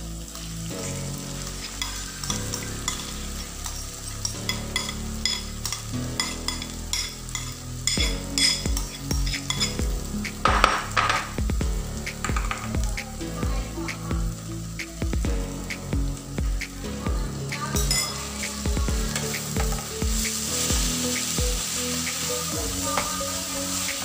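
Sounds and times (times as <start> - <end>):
chilies sizzling in oil: 0.0 - 24.0
spoon scraping a pan: 1.4 - 9.8, 17.8 - 18.4.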